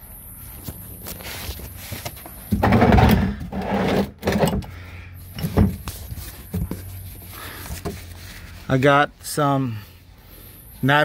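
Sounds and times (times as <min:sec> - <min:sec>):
rustling scrape: 0:05.4 - 0:08.9.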